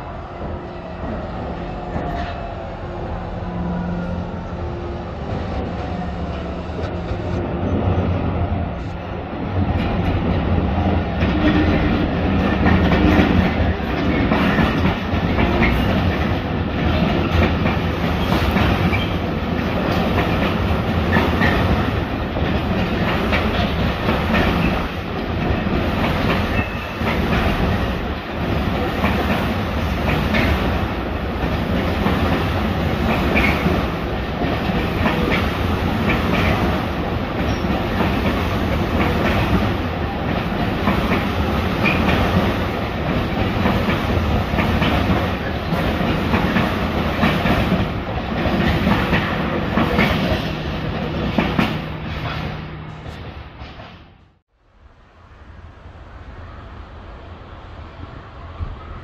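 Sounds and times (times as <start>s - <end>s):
train wheels clattering: 9.8s - 54.2s.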